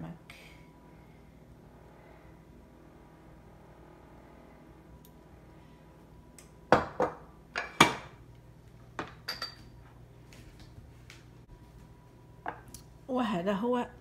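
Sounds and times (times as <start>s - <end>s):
glass dishes clinking on stone: 9.0s - 9.7s.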